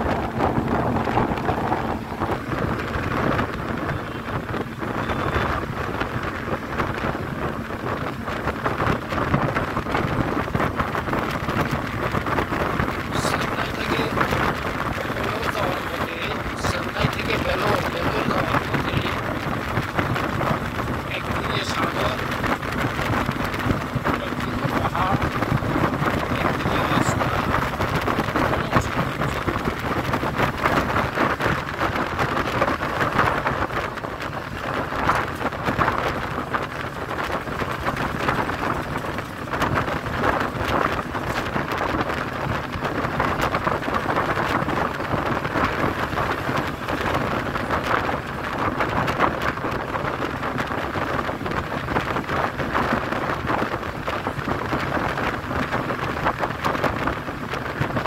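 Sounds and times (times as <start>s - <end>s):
bus road and engine noise: 0.0s - 58.0s
wind rushing through window: 0.0s - 58.0s.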